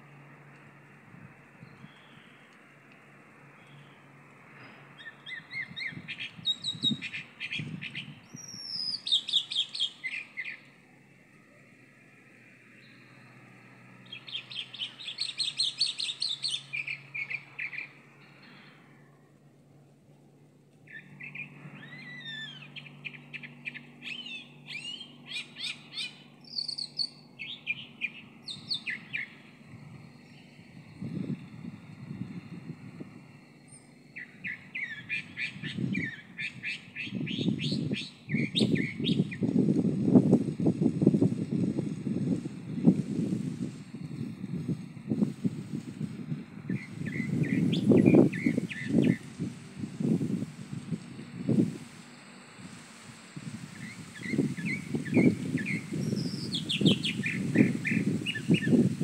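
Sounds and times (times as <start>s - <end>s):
bird singing whistled notes: 1.6s - 2.5s, 3.5s - 11.6s, 12.7s - 19.2s, 20.9s - 31.4s, 33.3s - 39.6s, 46.7s - 50.2s, 53.4s - 59.0s.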